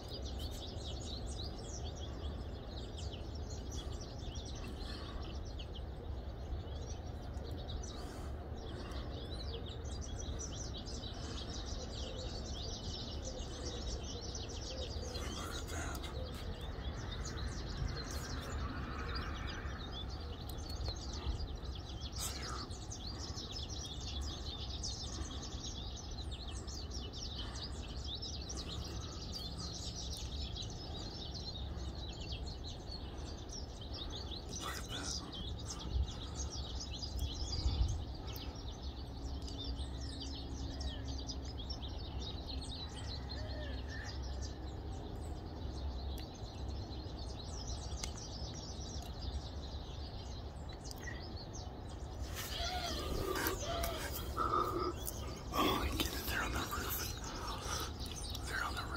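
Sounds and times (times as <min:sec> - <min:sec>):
small birds chirping: 0:00.0 - 0:58.9
low background rumble: 0:43.8 - 0:58.9.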